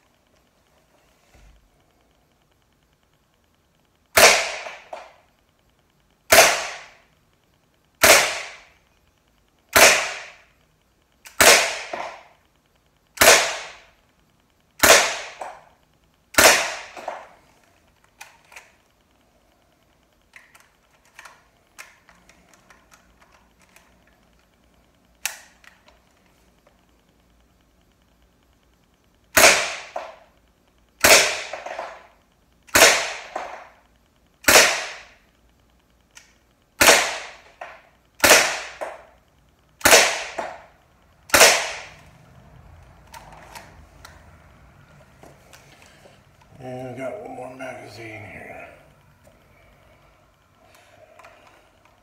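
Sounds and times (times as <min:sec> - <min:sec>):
pellet pistol shots: 0:04.2 - 0:05.0, 0:06.3 - 0:07.0, 0:08.0 - 0:08.7, 0:09.7 - 0:10.4, 0:11.3 - 0:12.3, 0:13.2 - 0:13.9, 0:14.8 - 0:15.6, 0:16.3 - 0:17.3, 0:29.3 - 0:30.2, 0:31.0 - 0:32.0, 0:32.7 - 0:33.6, 0:34.4 - 0:35.2, 0:36.8 - 0:37.5, 0:38.2 - 0:39.0, 0:39.8 - 0:40.7, 0:41.3 - 0:42.0.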